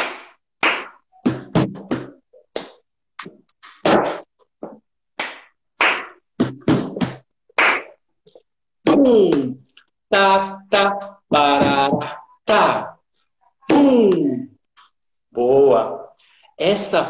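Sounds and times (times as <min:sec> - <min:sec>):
hand claps: 0:00.0 - 0:01.0, 0:05.2 - 0:06.2, 0:07.6 - 0:08.0.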